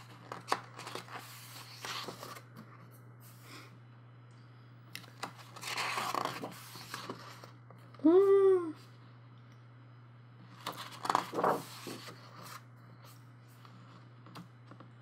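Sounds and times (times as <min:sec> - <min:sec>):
paper pages rustling: 0:00.0 - 0:02.5, 0:05.0 - 0:07.6, 0:10.6 - 0:14.0.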